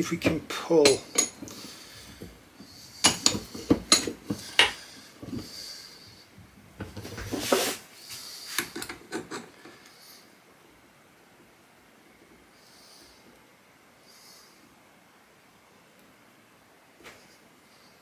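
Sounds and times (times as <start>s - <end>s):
metal tools clinking: 0.8s - 1.7s, 3.0s - 4.8s.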